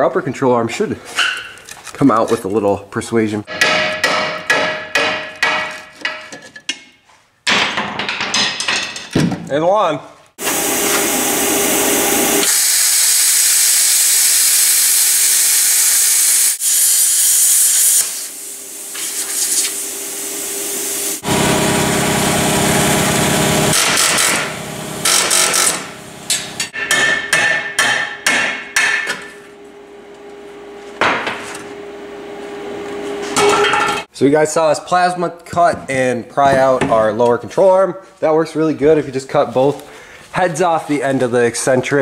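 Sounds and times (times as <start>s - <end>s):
metal clanks and knocks: 3.5s - 9.5s, 25.2s - 29.4s
plasma cutter hissing and crackling: 12.4s - 21.2s.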